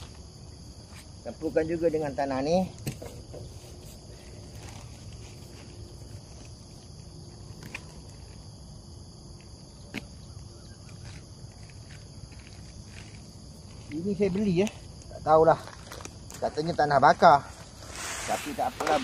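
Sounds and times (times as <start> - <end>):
insects chirring: 0.0 - 19.0.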